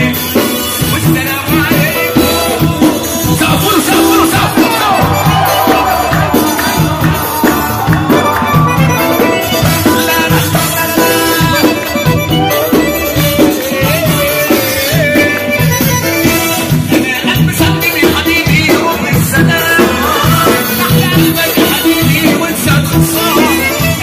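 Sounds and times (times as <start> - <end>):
accordion: 0.0 - 24.0
guitar: 0.0 - 24.0
loud live band music: 0.0 - 24.0
steady bass beat: 1.9 - 16.6.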